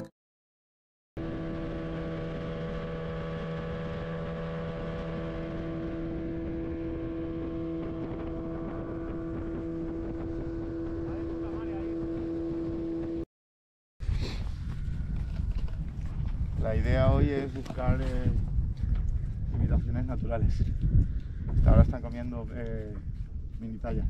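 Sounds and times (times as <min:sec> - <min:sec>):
outboard motor running: 0:01.2 - 0:13.3.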